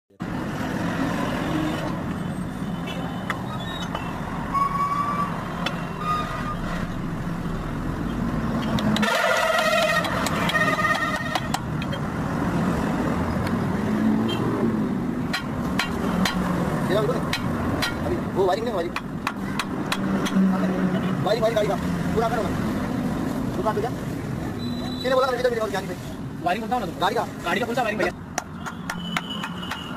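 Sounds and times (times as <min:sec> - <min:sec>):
sharp metal taps: 0:10.0 - 0:12.0, 0:15.3 - 0:16.5, 0:17.2 - 0:18.2, 0:18.9 - 0:20.4.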